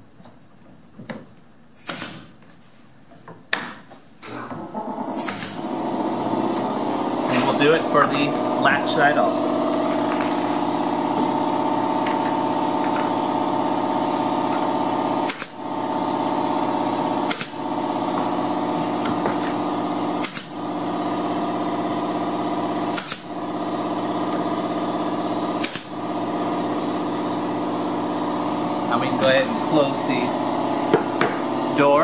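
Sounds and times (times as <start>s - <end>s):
nail gun firing: 1.8s - 2.3s, 5.1s - 5.8s, 14.4s - 15.8s, 17.1s - 17.8s, 19.4s - 20.7s, 22.6s - 23.4s, 25.4s - 26.6s
machine hum: 4.2s - 32.0s.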